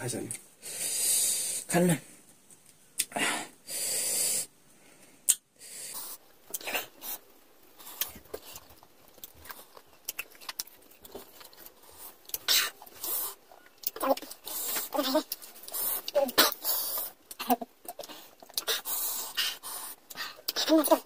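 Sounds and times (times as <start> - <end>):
hissing breath through teeth: 3.1 - 7.2, 18.0 - 20.5
chewing clicks and smacks: 7.9 - 12.5, 13.6 - 18.8.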